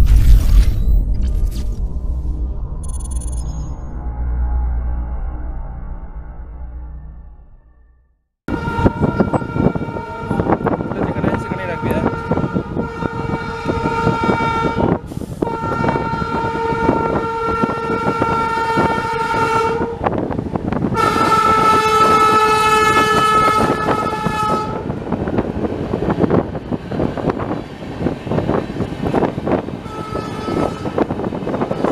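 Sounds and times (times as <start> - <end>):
electric train horn blasts: 8.5 - 20.2, 20.9 - 25.0, 29.8 - 31.9
moving train rumble and clatter: 8.5 - 31.9.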